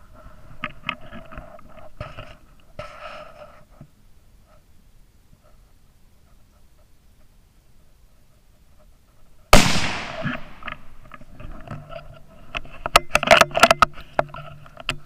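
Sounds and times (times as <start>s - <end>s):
sharp clicks and rustles: 8.8s - 15.0s
rifle shot: 9.6s - 11.0s.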